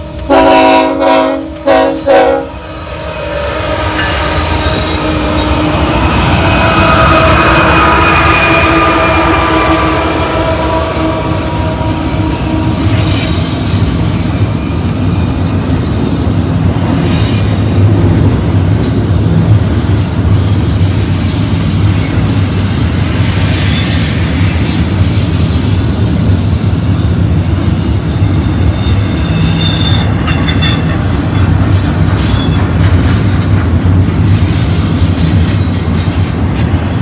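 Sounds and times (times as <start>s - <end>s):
steel wheels rumbling on rail: 0.0s - 37.0s
high-pitched wheel squeals: 3.3s - 15.4s, 19.9s - 26.8s, 28.2s - 31.5s.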